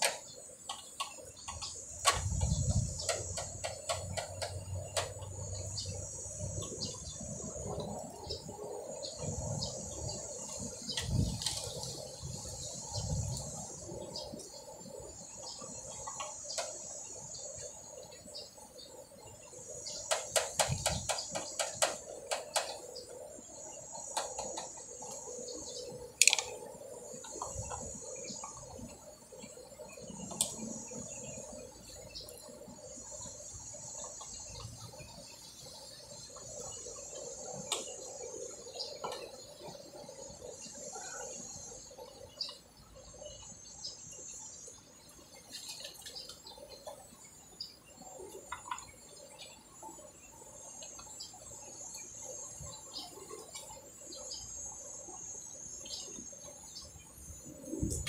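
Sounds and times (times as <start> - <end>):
insects trilling: 0.0 - 58.0
hands clicking in wiring: 26.2 - 26.5.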